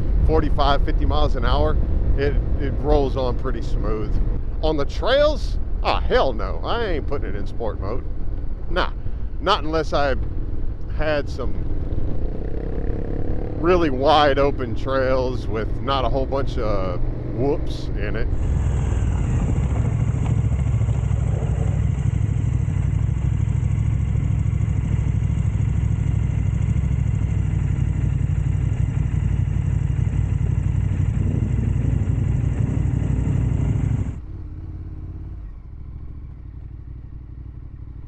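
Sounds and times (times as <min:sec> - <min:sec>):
wind noise: 0:00.0 - 0:12.8, 0:30.9 - 0:34.2
motorcycle engine running: 0:00.0 - 0:38.0.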